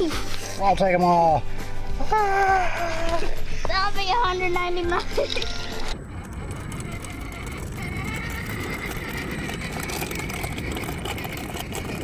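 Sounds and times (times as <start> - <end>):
electric motor and gears whining: 4.3 - 12.0
tyres rolling on gritty asphalt: 5.6 - 12.0.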